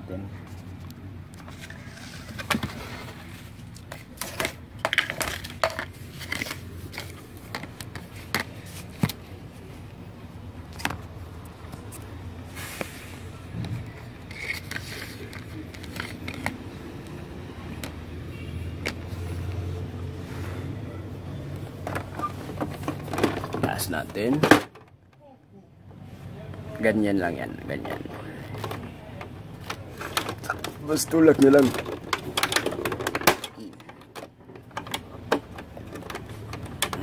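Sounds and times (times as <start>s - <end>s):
plastic clicks and scrapes: 0.8s - 9.2s, 13.6s - 18.0s, 27.8s - 37.0s.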